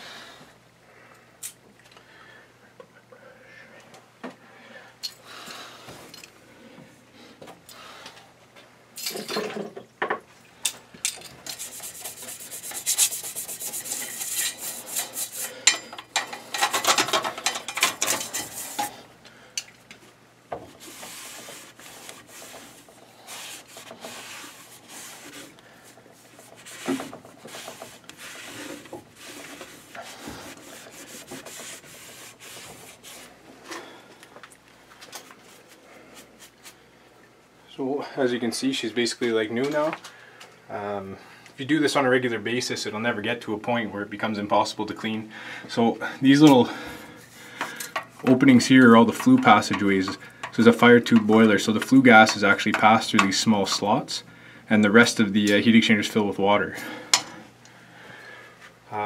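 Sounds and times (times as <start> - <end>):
cloth rag scraping metal: 11.4 - 19.1, 20.6 - 33.9, 48.3 - 53.9.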